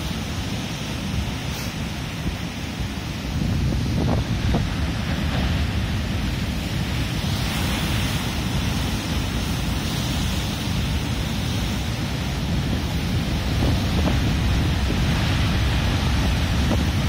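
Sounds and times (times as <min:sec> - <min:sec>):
surf breaking over rocks: 0:00.0 - 0:17.0
wind buffeting microphone: 0:01.1 - 0:17.0.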